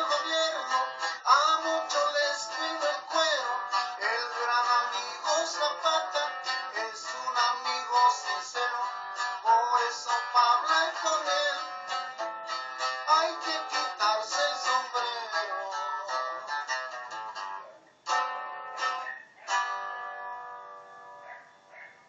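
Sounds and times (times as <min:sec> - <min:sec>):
acoustic guitar strumming: 0:00.0 - 0:21.4.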